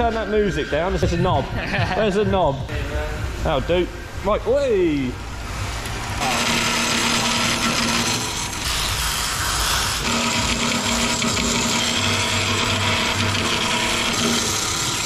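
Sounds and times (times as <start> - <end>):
band saw cutting metal: 6.2 - 15.0.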